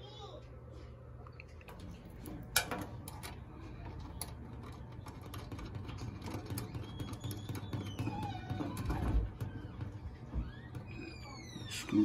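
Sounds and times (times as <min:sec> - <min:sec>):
metal connector clicking and scraping: 0:01.6 - 0:07.2.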